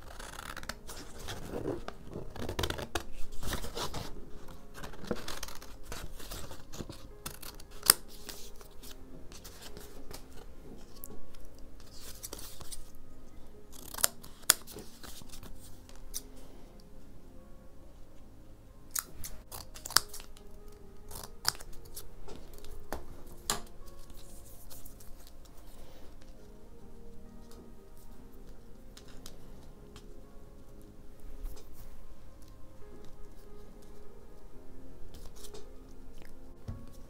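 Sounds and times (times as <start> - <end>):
paper rustling: 0.0 - 13.0, 13.7 - 16.4, 19.2 - 34.0
scissors cutting paper: 0.0 - 13.0, 13.7 - 16.3, 18.9 - 25.4, 35.1 - 37.0.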